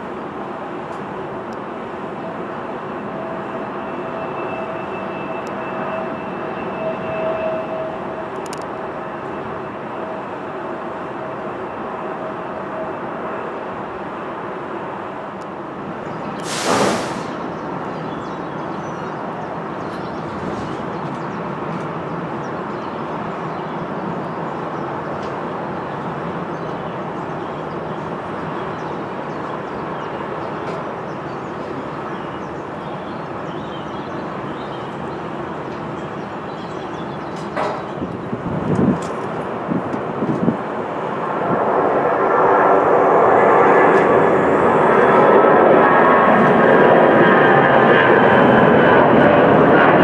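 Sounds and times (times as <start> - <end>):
jet engines taxiing: 0.0 - 50.0
loud burst of noise: 16.4 - 17.5.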